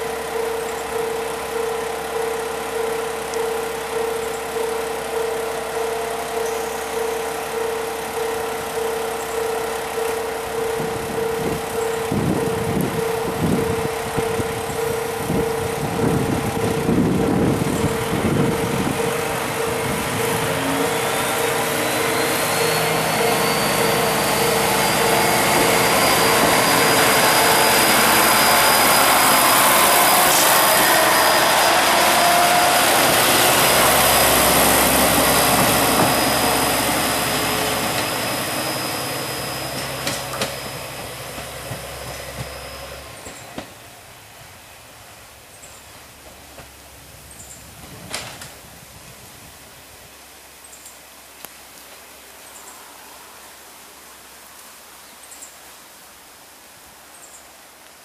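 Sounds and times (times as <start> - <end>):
pulsing tone: 0.0 - 43.6
rising whine: 0.0 - 45.5
diesel railcar engine revving: 0.0 - 49.9.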